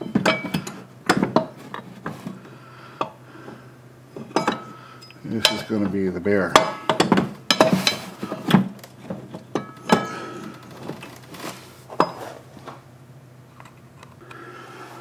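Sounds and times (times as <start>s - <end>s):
metal parts clinking and knocking: 4.2s - 5.9s.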